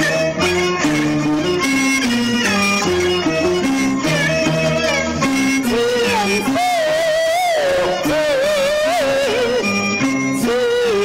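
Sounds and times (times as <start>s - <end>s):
instrumental ensemble: 0.0s - 11.0s
woman singing opera: 5.7s - 9.6s.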